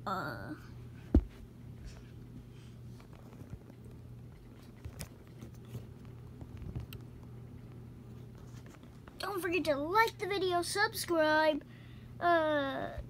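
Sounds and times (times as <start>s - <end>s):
low steady hum: 0.0s - 13.0s
dull thump: 1.1s - 1.4s.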